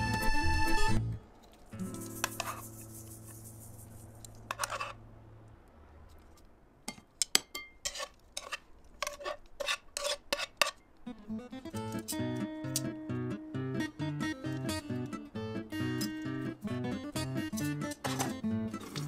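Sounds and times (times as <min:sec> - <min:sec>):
utensils clinking against pan and bowl: 0:17.5 - 0:19.0.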